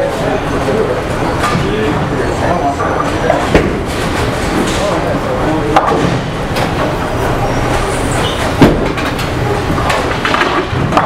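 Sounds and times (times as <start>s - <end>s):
bowling balls rumbling: 0.0s - 11.0s
loud sharp knock: 8.6s - 9.0s.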